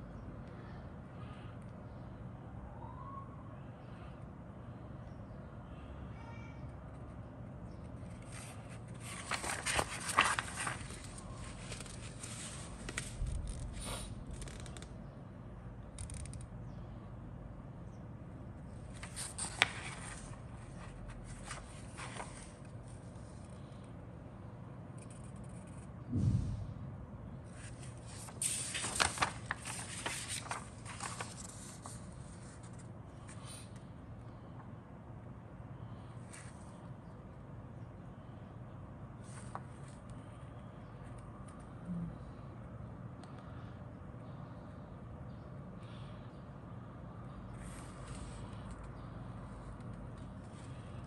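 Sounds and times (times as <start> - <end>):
paper rustling and crinkling: 8.0 - 14.8, 18.9 - 23.3, 27.5 - 33.4
sharp paper crackles: 8.0 - 14.9, 18.9 - 22.7, 27.5 - 32.9.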